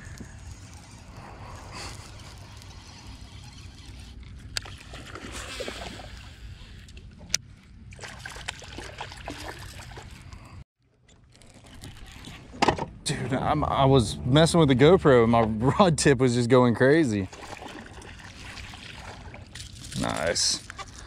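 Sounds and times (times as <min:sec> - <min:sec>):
wind rumble: 0:00.0 - 0:03.4, 0:12.0 - 0:16.6
water lapping around boat: 0:00.0 - 0:12.7, 0:17.2 - 0:21.0.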